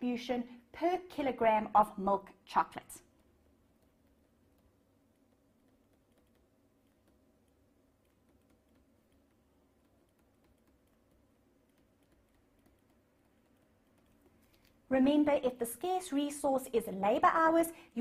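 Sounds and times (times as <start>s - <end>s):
low steady room hum: 0.0s - 18.0s
computer keyboard typing: 3.0s - 14.8s.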